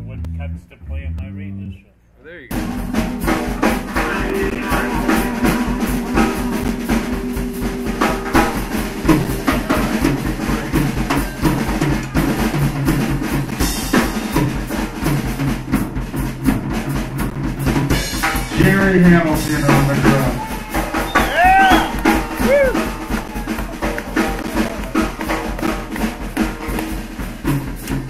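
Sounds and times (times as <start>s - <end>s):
bass guitar: 0.0s - 28.0s
electric guitar: 2.5s - 15.0s
drum kit beat: 2.5s - 28.0s.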